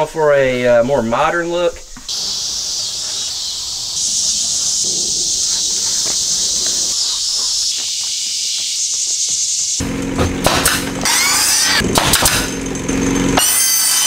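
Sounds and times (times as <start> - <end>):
insects droning: 0.0 - 11.8.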